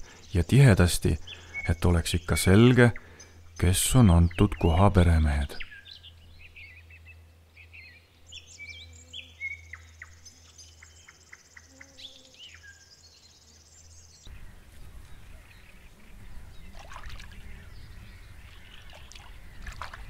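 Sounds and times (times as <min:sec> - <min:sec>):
birds chirping and whistling: 0:01.1 - 0:04.8, 0:05.4 - 0:20.0
beavers splashing in water: 0:16.3 - 0:20.0.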